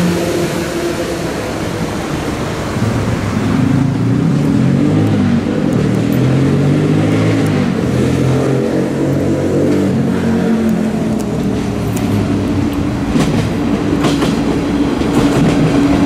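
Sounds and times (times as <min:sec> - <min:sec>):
diesel railcar engine running: 0:00.0 - 0:16.0
wheels clicking over rail joints: 0:07.4 - 0:16.0.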